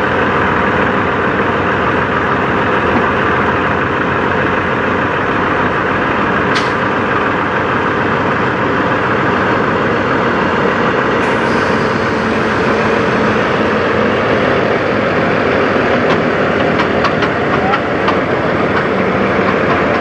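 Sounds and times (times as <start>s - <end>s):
truck diesel engine running: 0.0s - 20.0s
air hiss: 11.2s - 14.1s.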